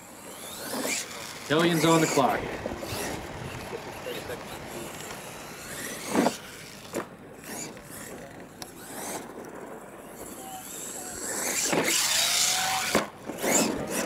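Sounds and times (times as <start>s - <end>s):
tyres churning loose dirt: 0.1s - 9.4s, 10.2s - 14.0s
rc truck landing thud: 5.8s - 8.0s, 11.2s - 14.0s.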